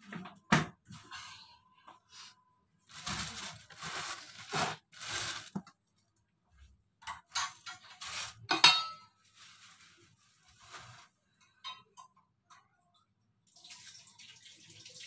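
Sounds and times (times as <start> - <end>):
plastic bag rustling: 2.9 - 5.7, 9.2 - 11.2
steel utensils clattering: 7.2 - 9.2.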